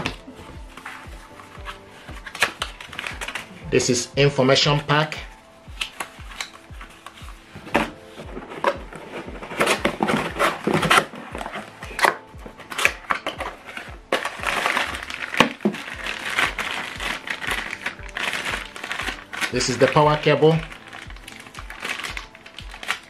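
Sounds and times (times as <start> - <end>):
paper packet crinkling: 0.0 - 3.6, 4.8 - 23.0
faint background music beat: 0.0 - 23.0
cardboard box knocking and scraping: 7.6 - 12.0.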